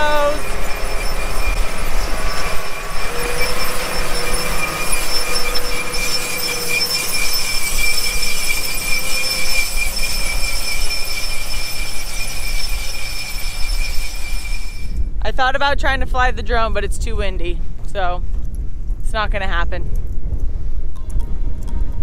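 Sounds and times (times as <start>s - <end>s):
high machinery whine: 0.0s - 15.2s
tractor engine and machinery: 0.0s - 16.2s
wind rumble on microphone: 0.0s - 22.0s.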